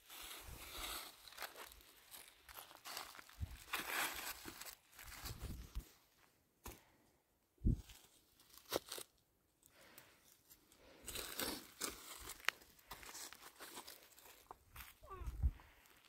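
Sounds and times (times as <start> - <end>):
crinkly rustling and crackling: 0.0 - 6.0, 7.7 - 16.0.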